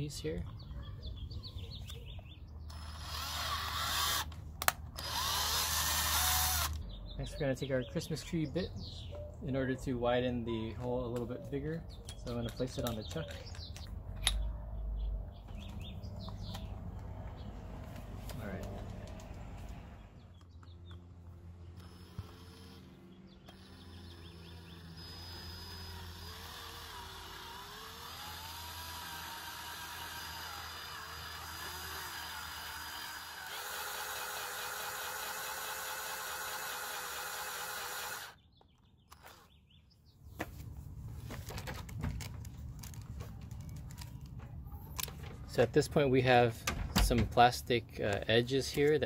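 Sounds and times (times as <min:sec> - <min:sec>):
cordless drill drilling plastic: 0:02.7 - 0:06.8, 0:21.7 - 0:38.4.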